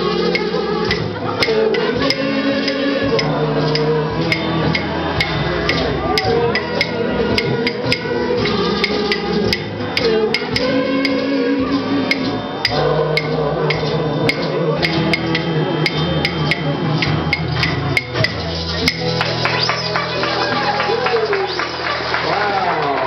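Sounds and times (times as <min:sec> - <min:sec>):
kazoo melody: 0:00.0 - 0:22.6
guitar: 0:00.0 - 0:23.0
low bass line: 0:00.0 - 0:23.0.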